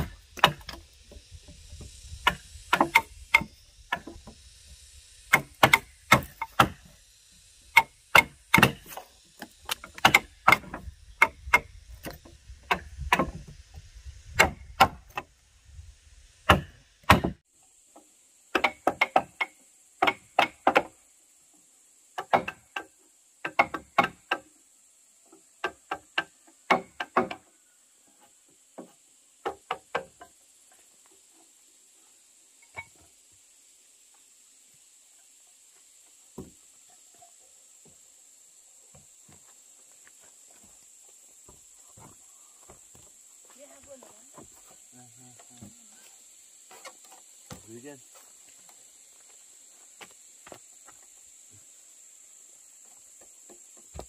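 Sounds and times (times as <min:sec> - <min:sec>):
axe chopping wood: 0:00.0 - 0:00.8, 0:02.2 - 0:04.2, 0:05.3 - 0:06.9, 0:07.8 - 0:13.5, 0:14.4 - 0:15.3, 0:16.5 - 0:17.4, 0:18.5 - 0:20.9, 0:22.2 - 0:24.4, 0:25.6 - 0:27.4.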